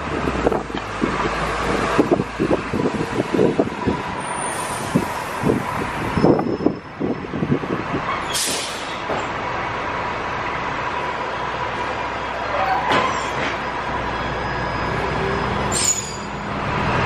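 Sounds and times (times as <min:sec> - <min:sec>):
wind buffeting microphone: 0:00.0 - 0:08.2
bus engine running: 0:00.0 - 0:17.0
air brakes hissing: 0:08.2 - 0:09.0, 0:15.7 - 0:16.4.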